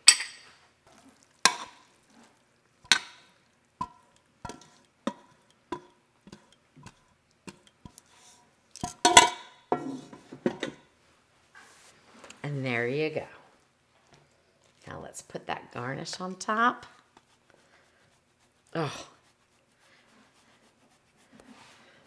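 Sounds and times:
utensil knocking metal pot: 0:01.5 - 0:01.8, 0:02.8 - 0:08.0, 0:08.8 - 0:10.8.

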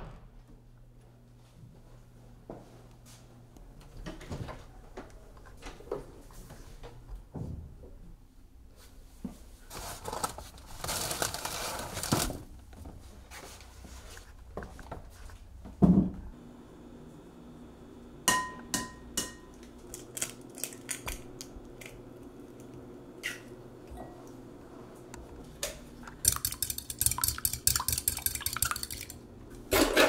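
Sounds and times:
rummaging at refrigerator: 0:09.6 - 0:16.1
glassware clinking: 0:18.3 - 0:19.5.

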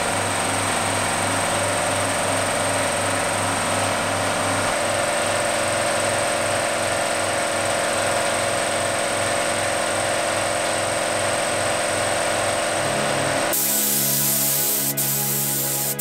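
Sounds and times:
machine motor throbbing: 0:00.0 - 0:16.0.

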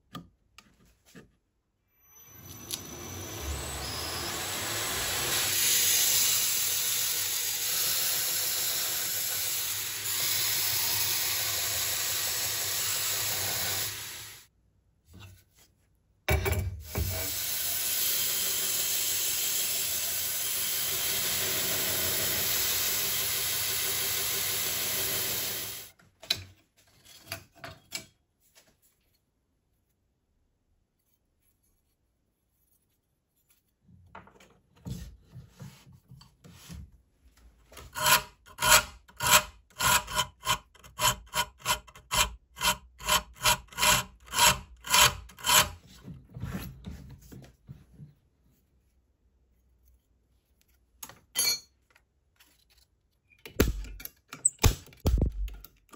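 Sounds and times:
belt grinder grinding blade: 0:38.0 - 0:45.8.

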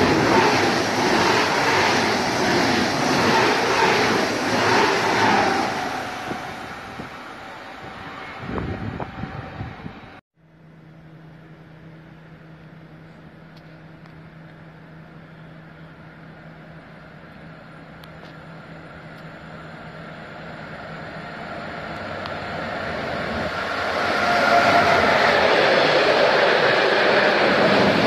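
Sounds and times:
freight train rumbling past: 0:00.0 - 0:10.2, 0:18.6 - 0:28.0.

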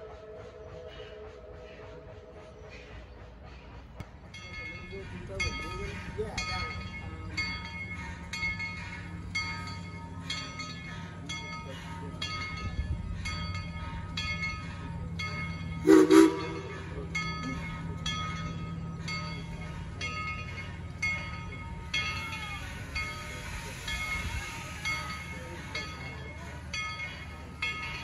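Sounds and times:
locomotive bell clanging: 0:04.1 - 0:28.0
train whistle toot: 0:15.8 - 0:16.9.

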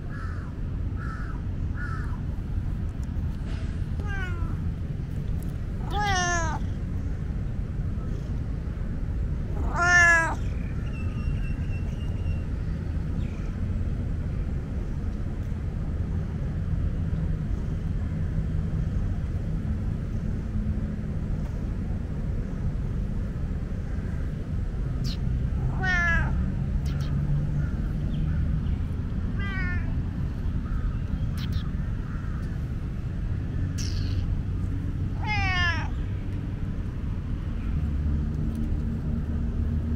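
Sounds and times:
cat meowing: 0:04.0 - 0:04.6, 0:05.8 - 0:06.8, 0:09.5 - 0:10.4, 0:25.1 - 0:27.1, 0:29.3 - 0:30.0, 0:35.2 - 0:36.0.

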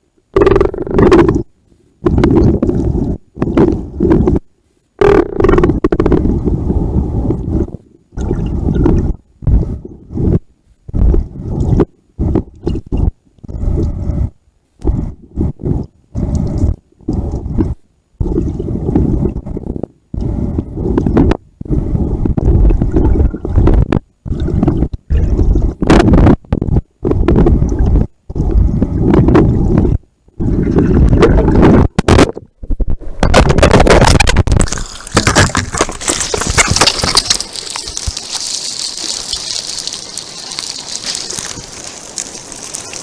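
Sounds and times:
muffled underwater water gurgling: 0:00.3 - 0:43.0
splashing water hiss: 0:36.0 - 0:43.0.

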